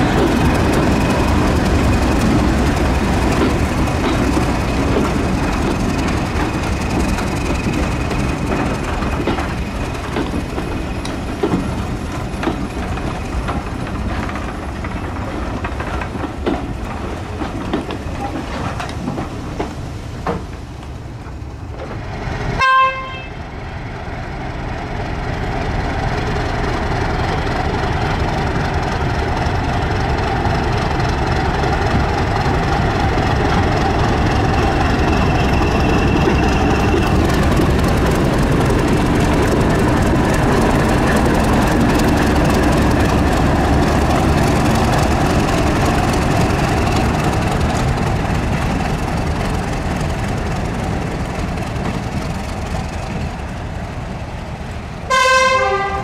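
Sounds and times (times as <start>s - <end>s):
train wheels clicking over rail joints: 0.0s - 23.1s, 24.0s - 56.0s
diesel locomotive engine: 0.0s - 56.0s
locomotive horn toot: 22.6s - 23.4s, 55.1s - 56.0s.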